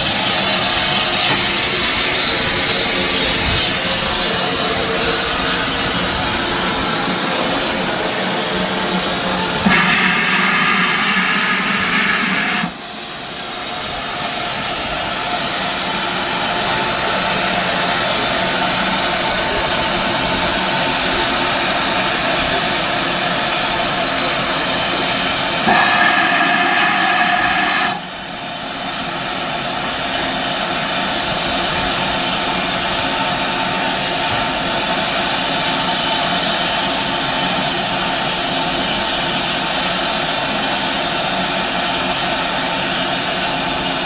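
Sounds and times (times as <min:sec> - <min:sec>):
steam hissing: 0:09.1 - 0:44.0
steam whistle: 0:09.6 - 0:13.6, 0:25.6 - 0:28.5.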